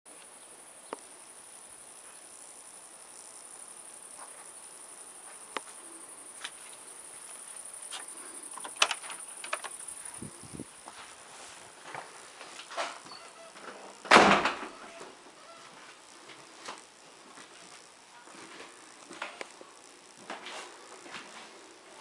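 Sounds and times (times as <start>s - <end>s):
steady high hiss: 0.1s - 22.0s
footsteps: 6.4s - 21.7s.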